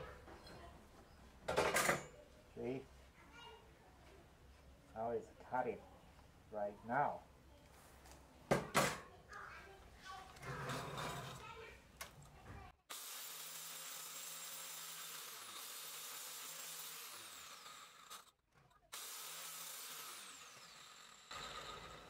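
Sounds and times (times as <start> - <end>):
angle grinder cutting metal: 12.9 - 22.0.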